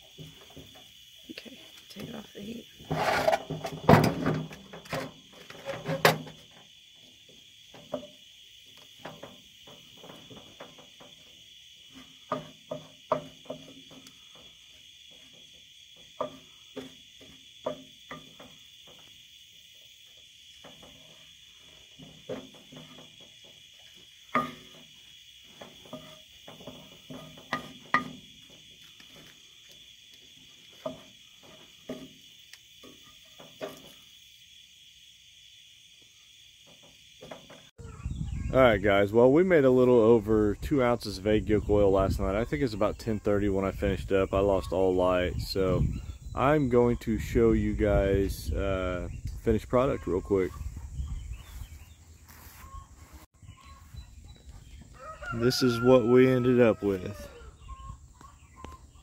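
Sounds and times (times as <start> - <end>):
night insects trilling: 0.0 - 59.0
wooden spoon scraping a skillet: 2.8 - 3.6, 25.5 - 28.1.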